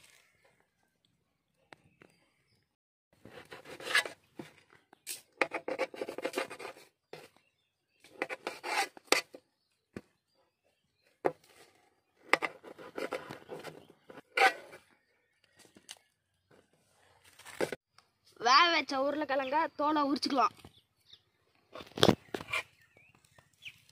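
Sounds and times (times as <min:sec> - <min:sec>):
blade scraping metal plate: 0:03.2 - 0:04.2, 0:08.1 - 0:09.4, 0:12.3 - 0:14.9
knife rasping through bread crust: 0:08.2 - 0:09.4.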